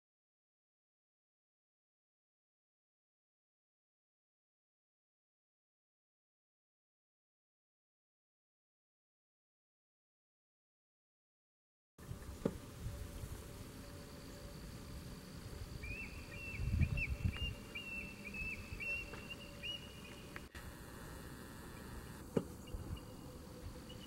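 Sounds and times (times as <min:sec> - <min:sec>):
wind rumble on microphone: 0:12.0 - 0:19.2, 0:22.6 - 0:24.0
eagle calling high piping notes: 0:15.6 - 0:24.0.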